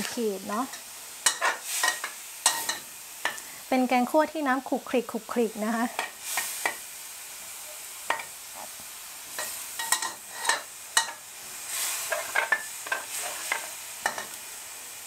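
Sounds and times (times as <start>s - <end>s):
metal spatula scraping wok: 0.0s - 3.4s, 9.3s - 14.4s
food sizzling: 0.0s - 15.0s.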